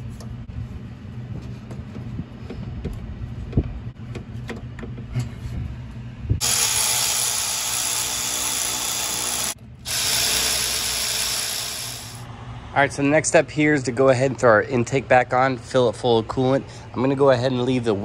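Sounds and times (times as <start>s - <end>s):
power ratchet whirring: 6.4s - 12.3s.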